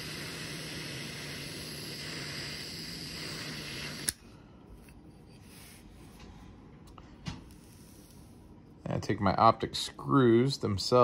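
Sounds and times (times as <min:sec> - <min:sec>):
torch shut-off click: 0:00.0 - 0:04.2
butane torch flame hissing: 0:00.0 - 0:10.2.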